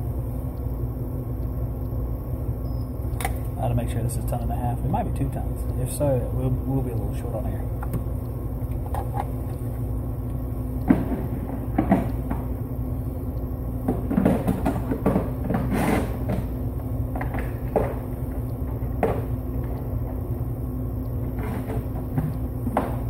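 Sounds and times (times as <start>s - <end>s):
blower low hum: 0.0s - 23.0s
equipment knocks and rustles: 10.9s - 12.5s, 13.8s - 16.5s.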